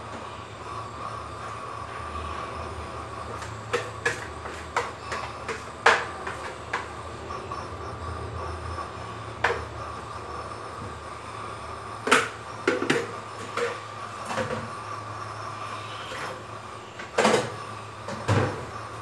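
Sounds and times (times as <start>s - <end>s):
steady hum with high whine: 0.0s - 19.0s.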